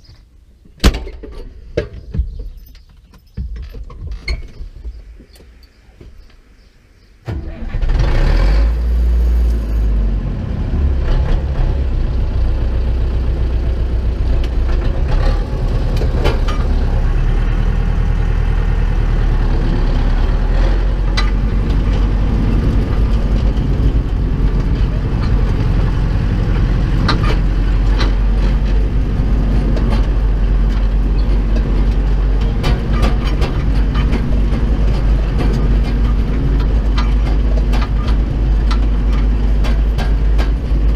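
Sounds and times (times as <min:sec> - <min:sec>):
tractor diesel engine running: 0:07.3 - 0:40.9
sharp rattles: 0:19.5 - 0:40.9.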